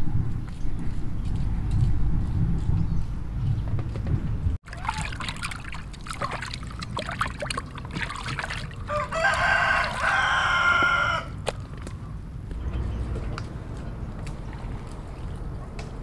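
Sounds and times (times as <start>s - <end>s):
rooster crowing: 8.8s - 11.4s.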